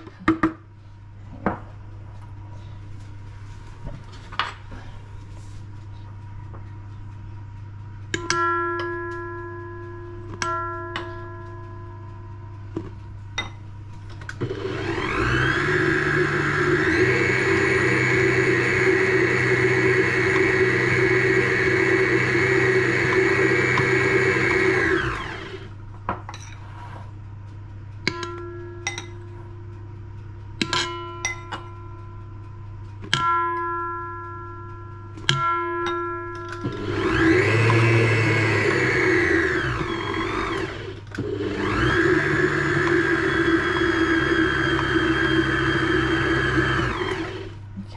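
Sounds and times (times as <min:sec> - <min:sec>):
electric stand mixer running: 0:14.3 - 0:25.8, 0:36.6 - 0:47.7.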